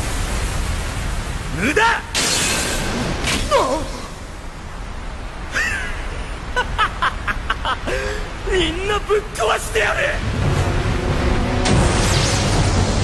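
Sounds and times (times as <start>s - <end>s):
man laughing maniacally: 5.5s - 8.3s.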